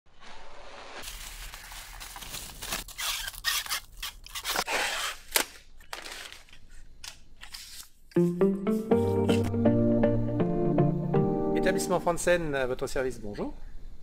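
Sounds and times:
plastic packaging crinkling and ripping: 0.8s - 4.7s.

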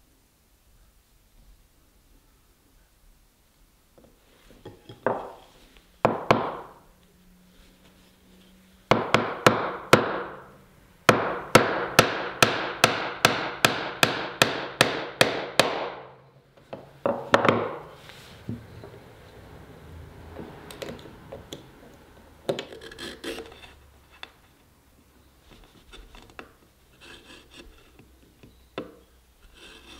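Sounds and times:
hammer striking chisel handle: 11.1s - 16.1s.

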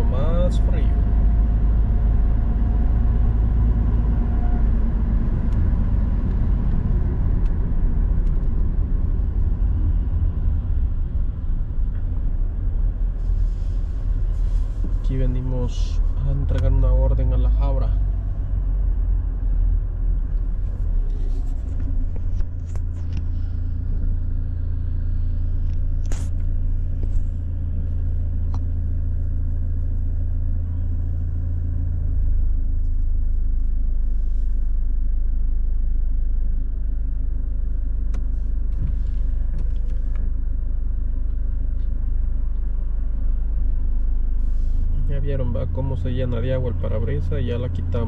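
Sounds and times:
car engine and road rumble: 0.0s - 48.0s.

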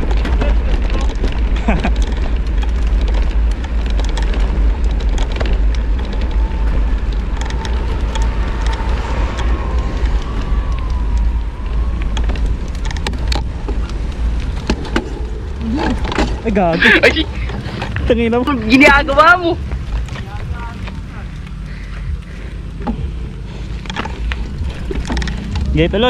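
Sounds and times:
sharp clicks and knocks: 0.0s - 11.3s, 12.0s - 16.6s
road noise: 0.0s - 26.0s
wind buffeting microphone: 0.0s - 26.0s.

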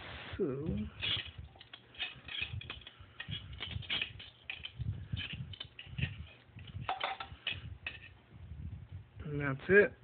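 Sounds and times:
handling of disc and nut: 0.6s - 8.3s.

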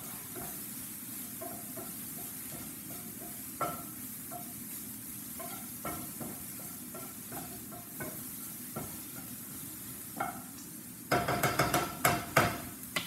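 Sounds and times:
vegetables sizzling in oil: 0.0s - 13.0s
wooden spatula scraping pan: 5.4s - 9.3s.

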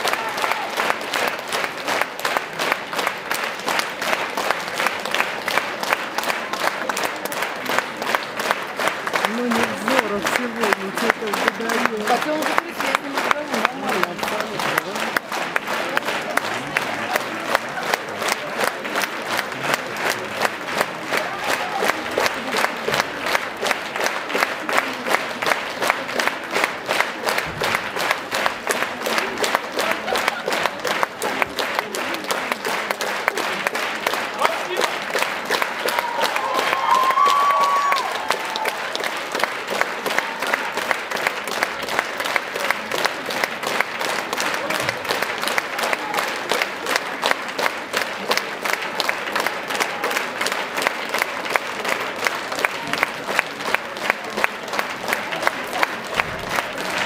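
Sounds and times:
audience applauding: 0.0s - 57.0s
sharp nearby claps: 0.0s - 57.0s.

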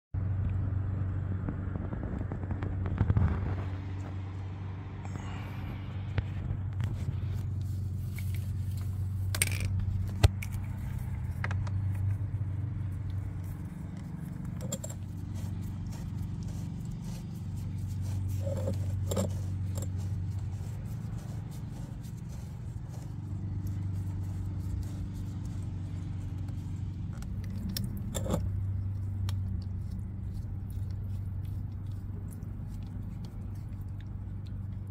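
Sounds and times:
low hum: 0.2s - 34.9s
metal fittings clicking and scraping: 8.0s - 21.1s, 24.6s - 30.0s.

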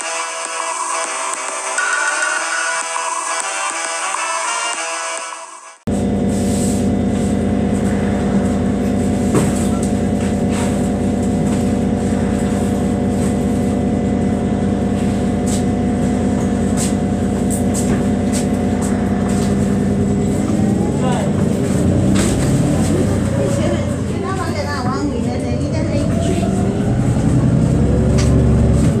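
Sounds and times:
bus engine idling: 5.9s - 29.0s.

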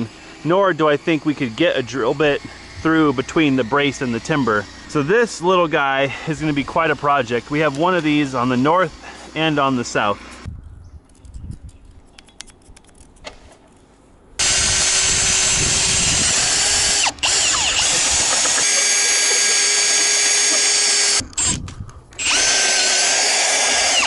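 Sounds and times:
drill boring into wood: 0.0s - 10.5s, 14.4s - 21.6s, 22.2s - 24.0s
handling clicks: 11.0s - 13.4s.

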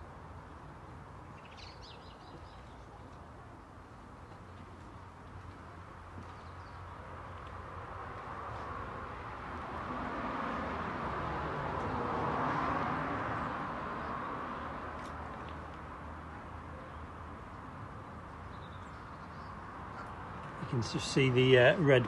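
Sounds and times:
vehicle passing by: 7.8s - 16.3s, 19.6s - 22.0s.

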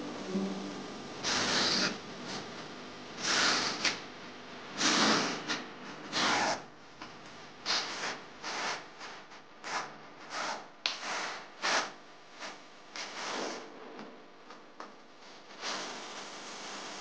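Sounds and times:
trowel scraping adhesive on concrete: 1.2s - 2.0s, 4.8s - 6.7s.

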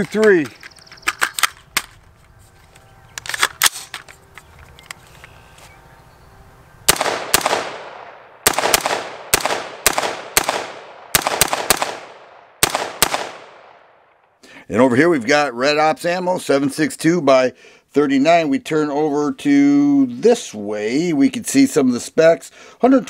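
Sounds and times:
rifle shots with ringing echo: 6.9s - 14.2s.

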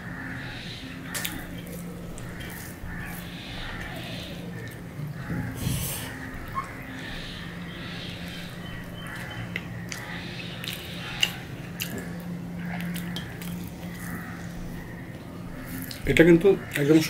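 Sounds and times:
steady low hum: 0.0s - 17.0s
person chewing: 9.2s - 14.2s.

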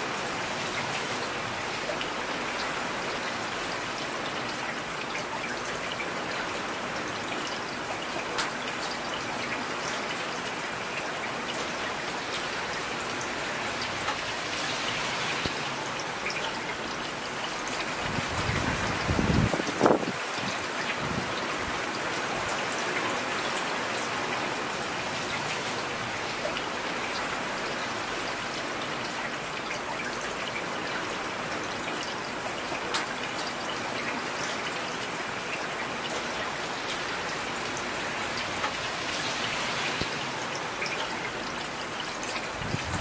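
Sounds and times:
steady rain hiss: 0.0s - 43.0s
raindrop ticks: 8.2s - 9.6s, 13.8s - 17.6s.

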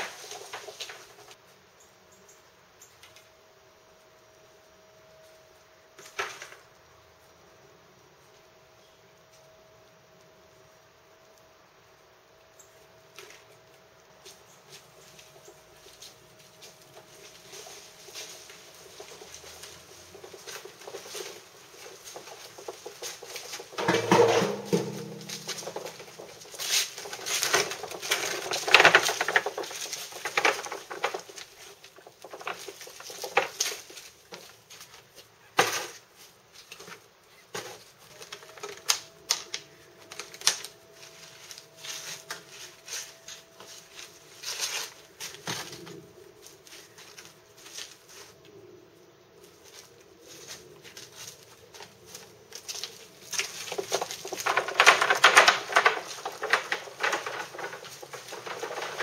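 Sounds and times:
hand cart rattling over paving: 0.0s - 1.4s, 15.0s - 35.0s, 36.6s - 45.9s, 50.9s - 59.0s
clay flowerpots clattering: 16.6s - 34.6s, 52.6s - 59.0s.

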